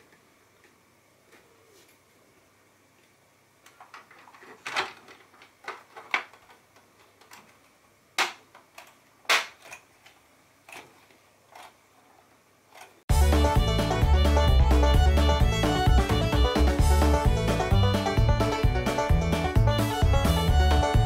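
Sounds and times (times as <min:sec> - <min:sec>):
plastic fan parts clicking: 0:03.6 - 0:11.8, 0:12.7 - 0:13.0.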